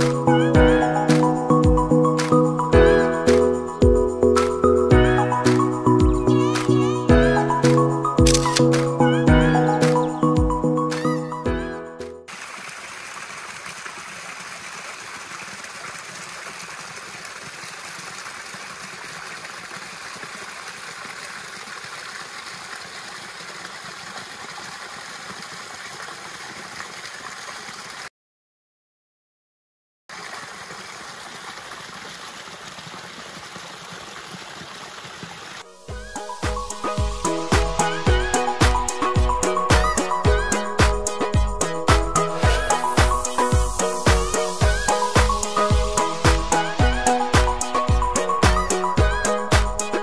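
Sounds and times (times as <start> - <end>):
small waterfall splashing into pool: 12.3 - 28.1, 30.1 - 35.7.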